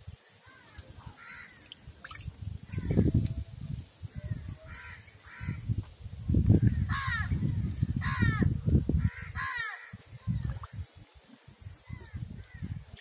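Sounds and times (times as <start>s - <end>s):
water sloshing in a plastic tub: 0.8s - 2.5s, 10.3s - 11.0s.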